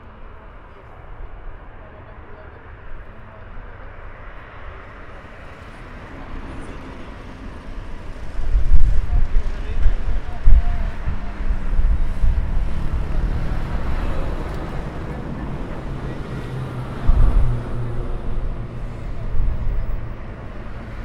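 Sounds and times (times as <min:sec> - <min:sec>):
distant jet engines rumbling: 0:04.6 - 0:21.0
wind buffeting microphone: 0:05.5 - 0:21.0.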